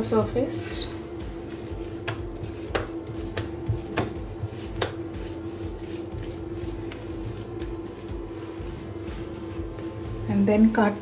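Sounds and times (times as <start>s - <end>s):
hands rolling dough: 0.0s - 10.6s
steady faint hum: 0.0s - 11.0s.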